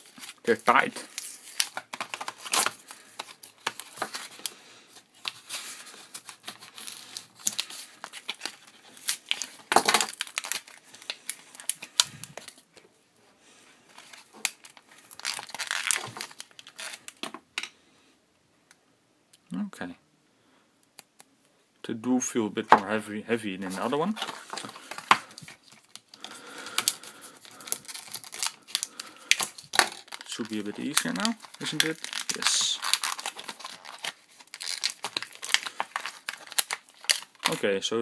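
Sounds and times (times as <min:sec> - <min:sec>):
blister packaging torn open: 0:00.0 - 0:04.5, 0:05.2 - 0:12.6, 0:14.0 - 0:17.3, 0:24.2 - 0:37.6.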